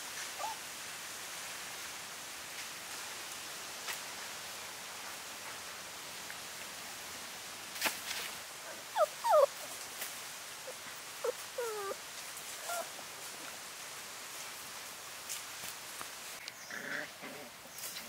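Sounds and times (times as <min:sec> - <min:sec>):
steady hiss: 0:00.0 - 0:18.0
puppies whimpering: 0:08.7 - 0:09.8, 0:10.7 - 0:12.0, 0:12.6 - 0:13.0.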